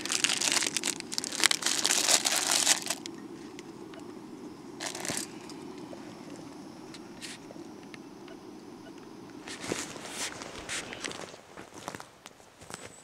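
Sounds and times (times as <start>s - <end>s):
plastic packaging crinkling: 0.0s - 3.2s, 4.8s - 5.5s, 9.4s - 12.0s.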